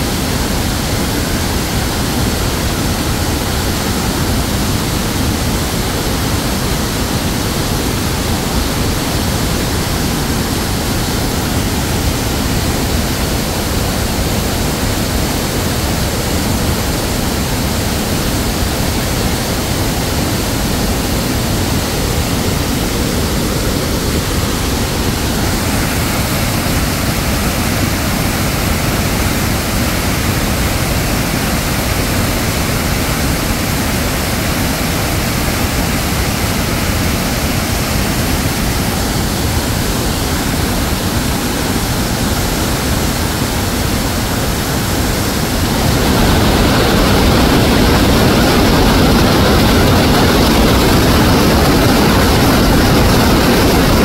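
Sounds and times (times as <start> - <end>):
waterfall rushing water: 0.0 - 54.0.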